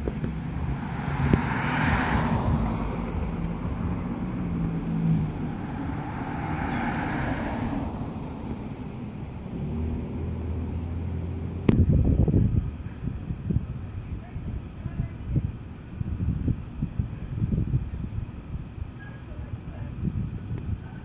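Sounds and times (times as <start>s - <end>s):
motor vehicle engine drone: 0.0s - 14.0s.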